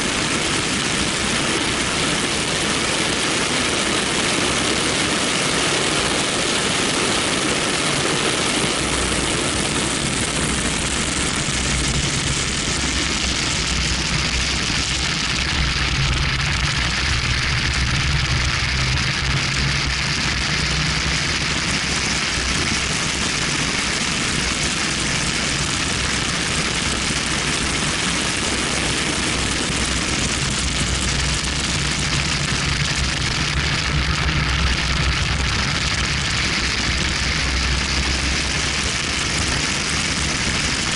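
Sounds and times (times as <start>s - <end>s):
car engine at speed: 0.0s - 40.9s
wind rushing over microphone: 0.0s - 40.9s
road noise: 8.6s - 22.6s, 28.9s - 39.6s.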